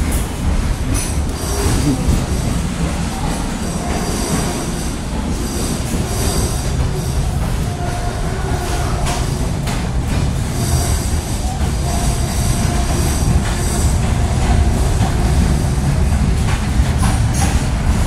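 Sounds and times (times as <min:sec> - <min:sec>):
train wheels rumbling and rattling: 0:00.0 - 0:18.0.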